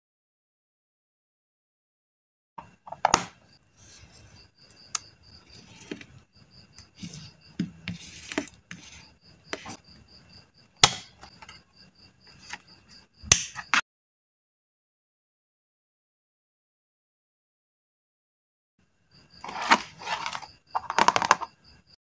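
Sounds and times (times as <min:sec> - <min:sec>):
paper rustling: 0:19.4 - 0:21.4.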